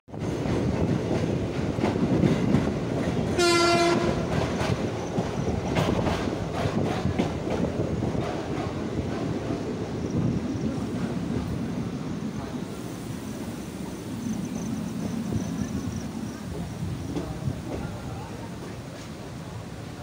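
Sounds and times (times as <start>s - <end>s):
wheels clacking over rail joints: 0.1s - 11.7s, 15.0s - 19.3s
train rumble: 0.1s - 20.0s
train horn blast: 3.3s - 4.4s.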